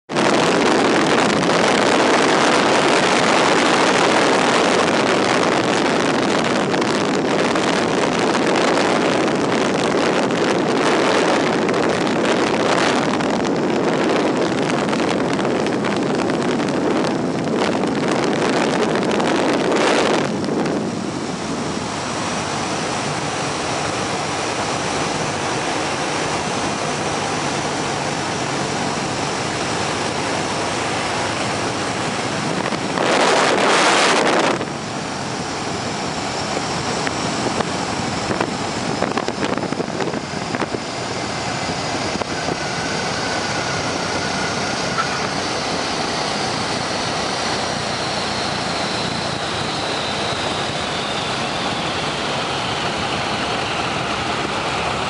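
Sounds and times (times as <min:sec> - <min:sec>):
radial engine running: 0:00.1 - 0:55.0
wind rushing: 0:00.1 - 0:55.0.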